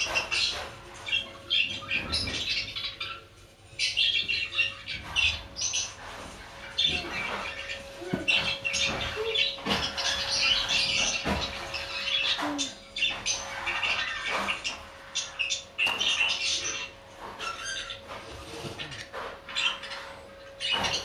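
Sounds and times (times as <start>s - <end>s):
budgerigars chattering: 0.0s - 21.0s.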